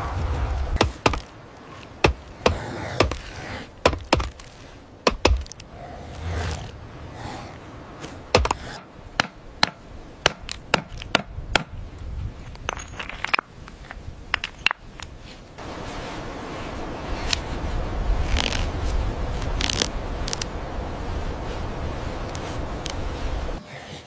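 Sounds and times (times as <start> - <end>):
low rumble: 0.0 - 1.5.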